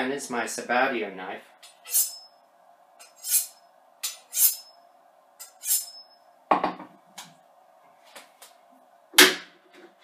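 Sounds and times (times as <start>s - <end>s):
knife scraping on honing rod: 1.8s - 2.3s, 3.0s - 4.8s, 5.4s - 6.1s.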